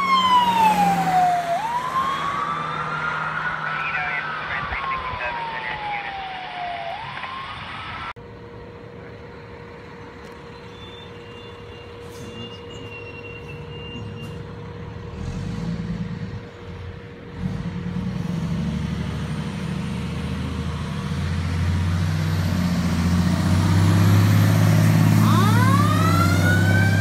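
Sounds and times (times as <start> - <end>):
wail siren: 0.0 - 8.2, 24.0 - 27.0
fire engine engine rumble: 0.0 - 17.4.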